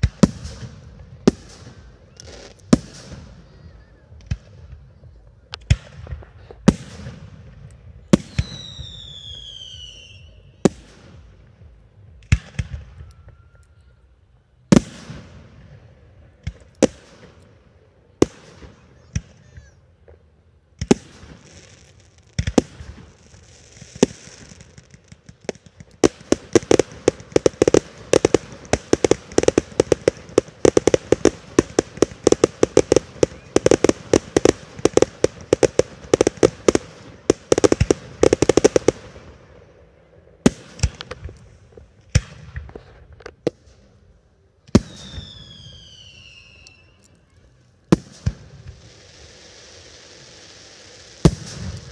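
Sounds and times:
falling firework whistle: 8.2 - 10.7, 12.6 - 14.0, 28.2 - 36.8, 44.8 - 47.4
rapid firework crackling: 20.8 - 39.5, 47.9 - 51.9
firework shells bursting: 23.8 - 39.2.

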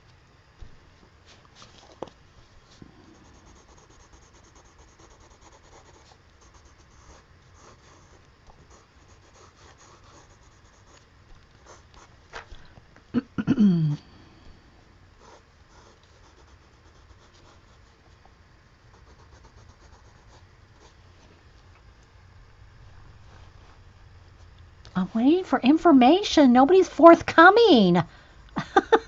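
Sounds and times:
colored pencil scratching on paper: 2.8 - 12.2, 15.2 - 18.2, 18.9 - 21.2.

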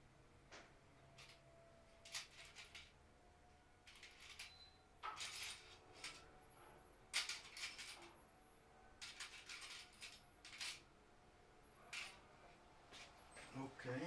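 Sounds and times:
tools clinking and rattling: 1.0 - 3.0, 3.8 - 6.4, 7.1 - 8.2, 9.0 - 10.9, 11.8 - 13.5.

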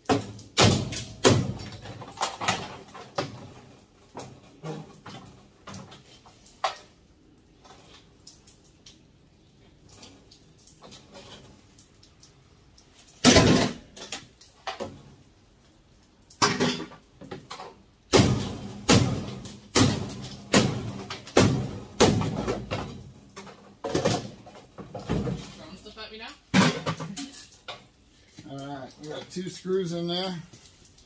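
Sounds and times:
knocks on sheet metal: 0.0 - 1.7, 18.1 - 22.9.

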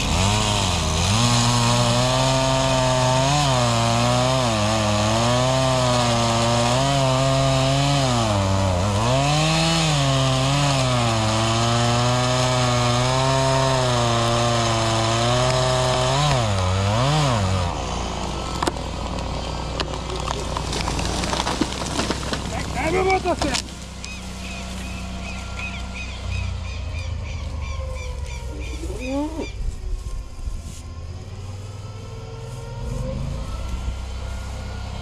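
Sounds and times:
chainsaw cutting wood: 0.0 - 26.6.

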